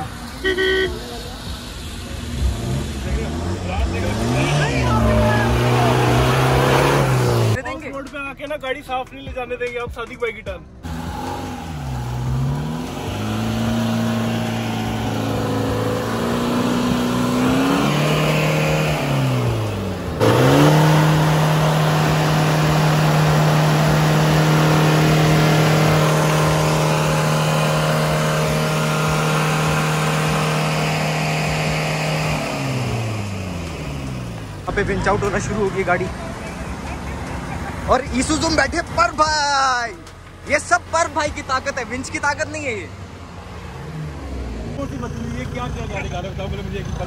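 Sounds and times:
vehicle engine revving hard: 0:01.5 - 0:07.6, 0:10.8 - 0:37.8.

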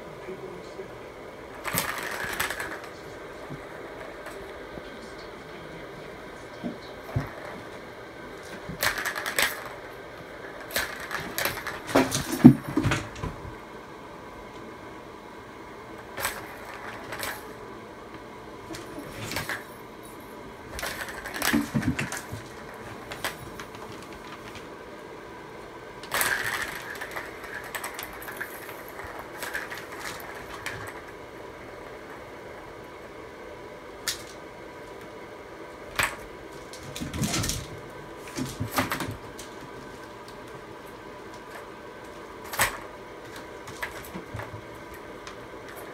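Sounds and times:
plastic balls rattling in toy track: 0:01.6 - 0:03.0, 0:08.7 - 0:09.8, 0:10.5 - 0:13.2, 0:16.2 - 0:17.5, 0:20.7 - 0:24.6, 0:26.0 - 0:31.2.

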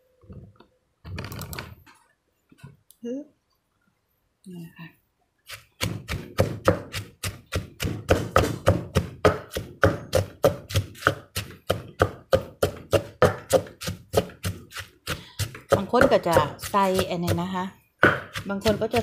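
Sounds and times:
pestle pounding in a mortar: 0:05.5 - 0:19.0.

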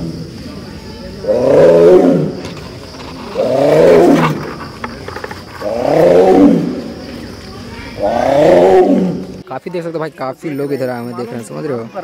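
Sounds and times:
tiger roaring: 0:01.2 - 0:02.5, 0:03.3 - 0:04.7, 0:05.6 - 0:07.0, 0:08.0 - 0:09.4.

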